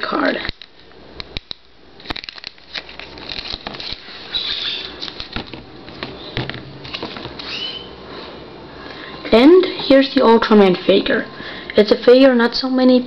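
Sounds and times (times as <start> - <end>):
plastic crinkling: 0.3 - 7.8
plastic card sleeve rustling: 0.4 - 7.9.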